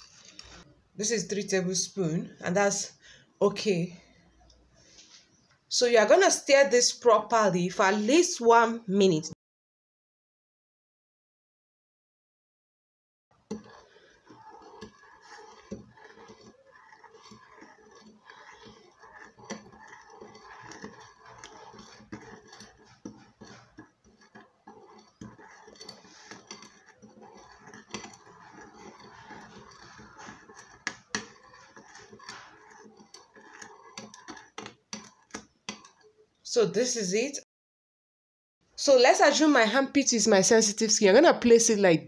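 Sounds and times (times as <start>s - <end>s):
water swishing in a bowl: 13.4s - 36.2s.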